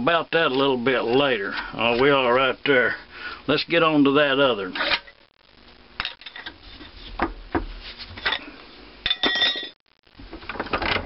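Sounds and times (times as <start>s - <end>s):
metal clinks and knocks: 9.1s - 9.8s.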